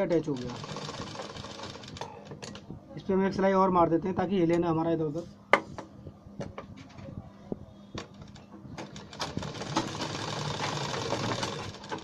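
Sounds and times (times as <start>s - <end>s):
sewing machine stitching: 0.0s - 2.3s, 8.8s - 12.0s.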